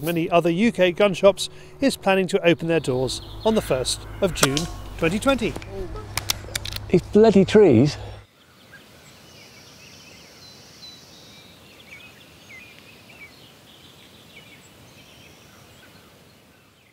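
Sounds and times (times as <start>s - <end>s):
small birds chirping: 0.0s - 7.0s
high bird trill: 0.0s - 7.2s.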